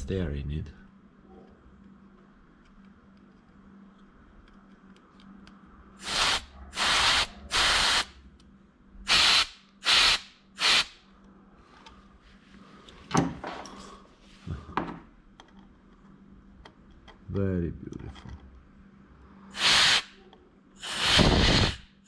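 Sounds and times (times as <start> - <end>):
air blow gun hissing: 6.0 - 8.1, 9.1 - 10.9, 19.5 - 20.2, 20.8 - 22.0.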